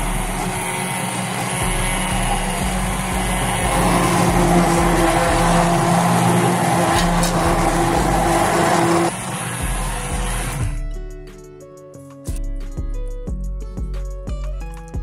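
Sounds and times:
immersion blender whirring: 0:00.0 - 0:10.7.

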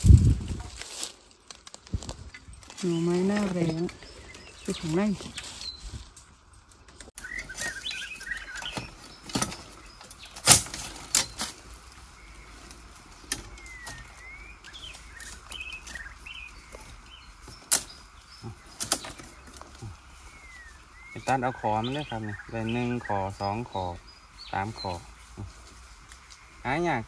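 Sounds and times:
bird chirps: 0:02.8 - 0:06.1, 0:07.2 - 0:27.0
sharp knocks and cracks of bamboo: 0:07.0 - 0:12.0, 0:12.7 - 0:19.9.

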